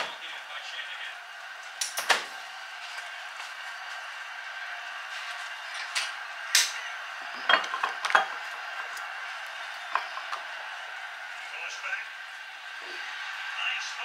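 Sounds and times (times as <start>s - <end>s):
bottles clinking on stone countertop: 7.4s - 8.3s.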